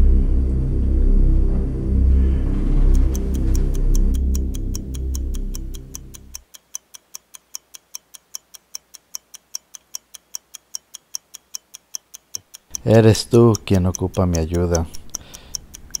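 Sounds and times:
low sustained music: 0.0 - 4.6
clock ticking quickly: 2.9 - 16.0.

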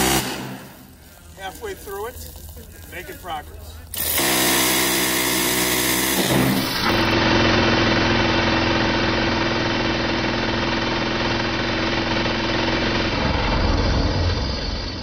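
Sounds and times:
minigun firing continuous burst: 3.9 - 13.6
heavy low rumble: 13.0 - 15.0.

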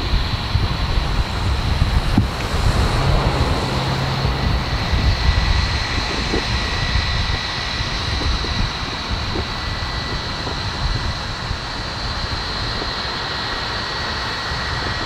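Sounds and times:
surf washing: 0.0 - 7.4
aircraft engines droning: 0.0 - 15.0
wind buffeting microphone: 0.0 - 15.0.

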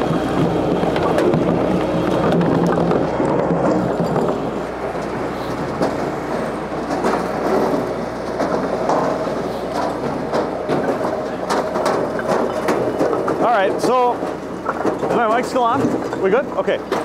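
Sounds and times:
firewood clattering off conveyor: 0.0 - 17.0
machine mechanical drone: 0.0 - 17.0.

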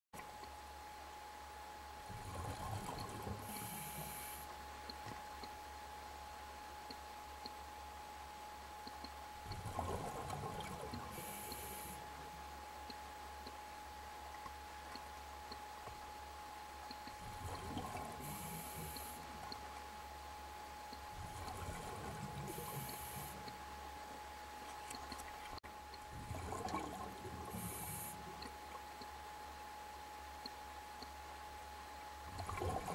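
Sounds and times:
faint steady whine: 0.2 - 32.9
regulator exhalation bubbling: 21.2 - 23.6.

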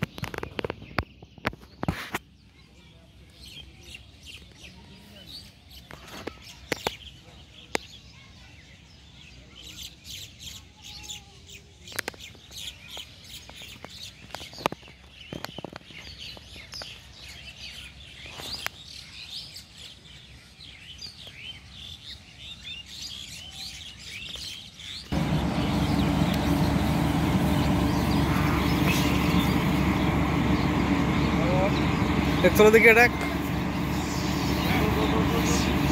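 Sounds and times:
small birds chirping: 0.0 - 35.9
steady noise with low hum: 25.1 - 35.9.

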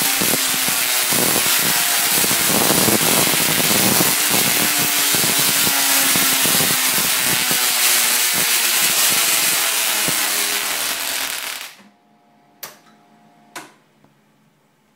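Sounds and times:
electrical arcs crackling buzz: 0.0 - 11.9.

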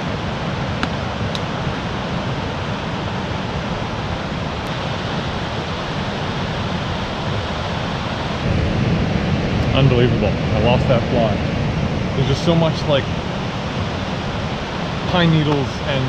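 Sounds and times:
river rushing over rocks: 12.2 - 16.0.

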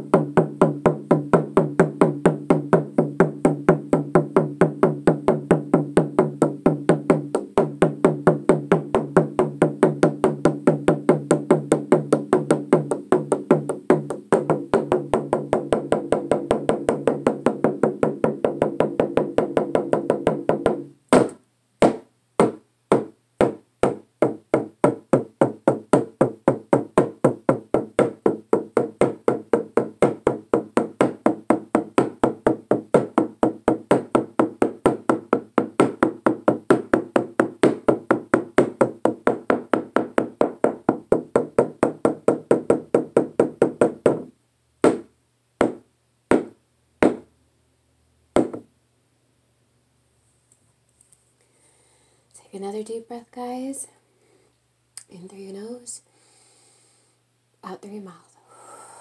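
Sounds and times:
frame drum beaten with stick: 0.0 - 44.2.

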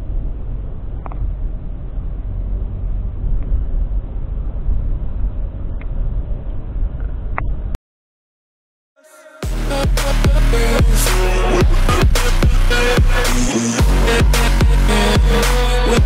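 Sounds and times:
car driving in traffic: 0.0 - 5.8.

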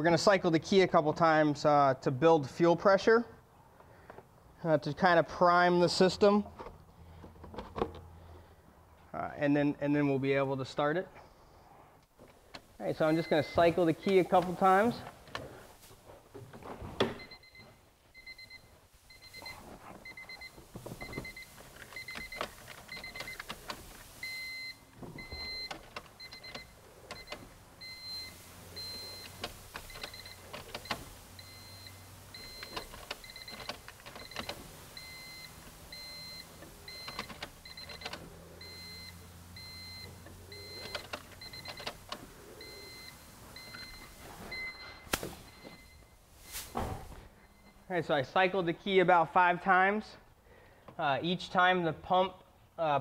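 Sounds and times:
fuel pump humming: 12.4 - 47.8
car warning chime beeping: 12.8 - 15.1, 17.2 - 46.6
clicks: 38.9 - 46.0.

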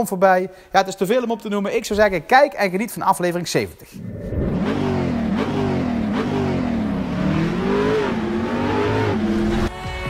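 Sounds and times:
car engine revving: 4.0 - 9.7
music: 9.1 - 10.0.

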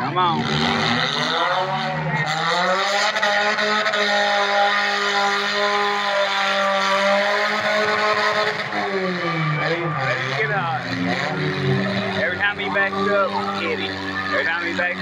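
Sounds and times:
car engine at high revs: 0.0 - 15.0.

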